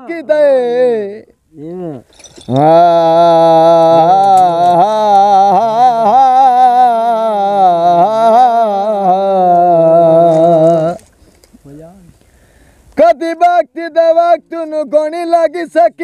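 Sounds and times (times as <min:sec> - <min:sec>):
man singing a long wavering note: 0:01.9 - 0:11.0.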